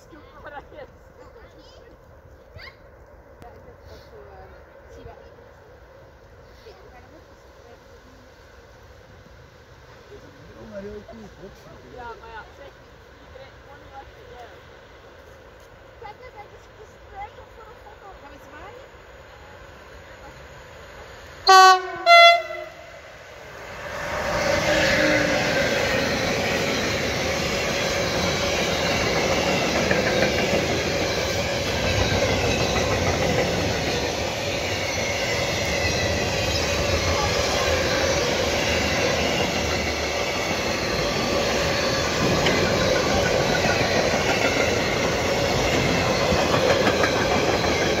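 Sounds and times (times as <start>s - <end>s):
train wheels rushing on rails: 0.0s - 48.0s
locomotive horn: 21.4s - 23.0s.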